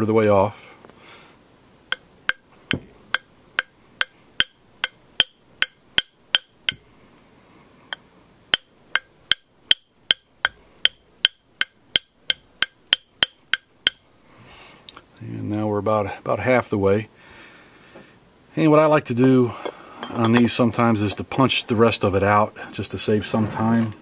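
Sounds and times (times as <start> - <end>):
hammer tapping on metal: 1.9 - 6.8, 7.9 - 14.0.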